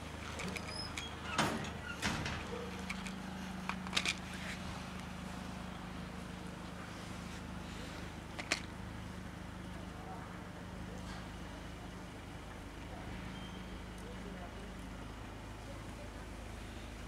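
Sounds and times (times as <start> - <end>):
rustles: 0.0 - 8.8
low mechanical hum: 0.0 - 17.0.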